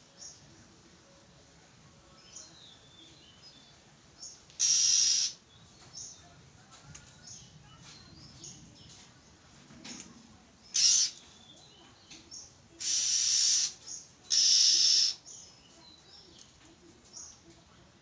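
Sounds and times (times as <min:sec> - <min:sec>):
bird giving harsh hissing rasps: 0:04.6 - 0:05.4, 0:10.7 - 0:11.2, 0:12.8 - 0:15.3.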